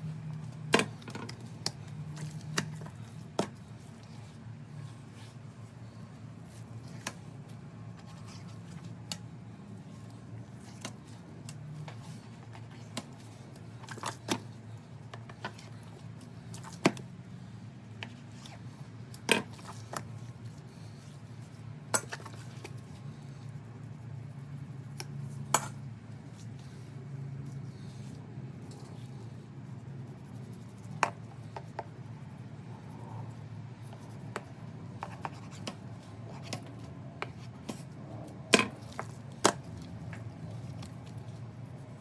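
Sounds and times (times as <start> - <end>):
low steady hum: 0.0 - 42.0.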